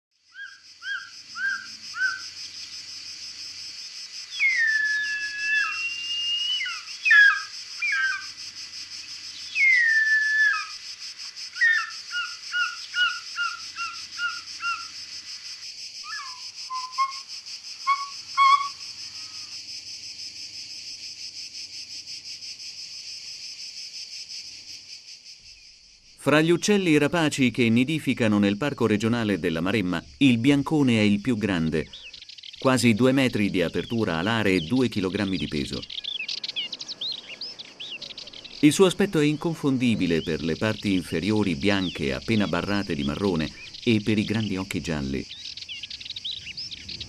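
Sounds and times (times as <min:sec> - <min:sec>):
insect chorus: 0:00.1 - 0:47.0
bird whistling calls: 0:00.3 - 0:02.2, 0:04.3 - 0:08.3, 0:09.5 - 0:10.8, 0:11.6 - 0:14.9, 0:16.0 - 0:19.5.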